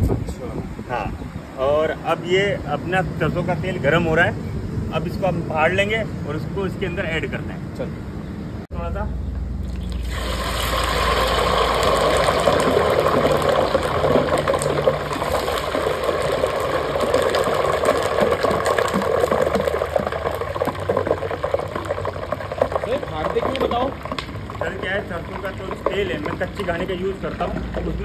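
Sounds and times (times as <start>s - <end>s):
hot oil sizzling and crackling: 9.6s - 28.0s
water pouring into pot: 9.8s - 27.8s.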